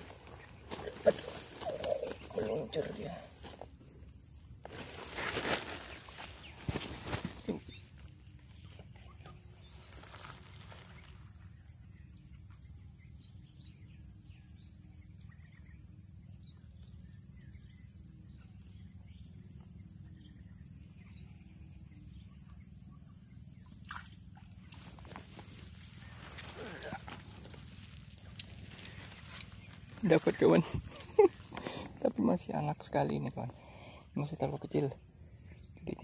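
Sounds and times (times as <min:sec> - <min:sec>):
insect drone: 0:00.0 - 0:36.0
bird chirps: 0:06.4 - 0:10.2.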